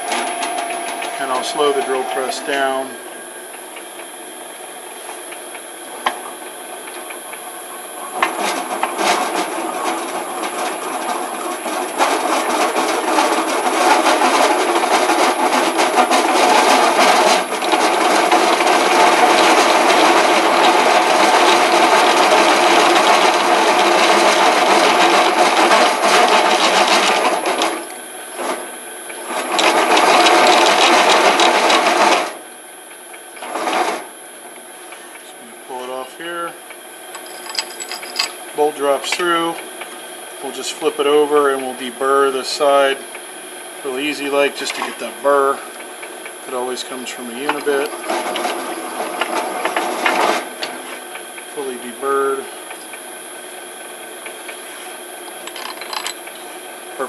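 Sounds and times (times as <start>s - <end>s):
drill bit cutting metal: 0.0s - 3.4s
drill press running: 0.0s - 57.0s.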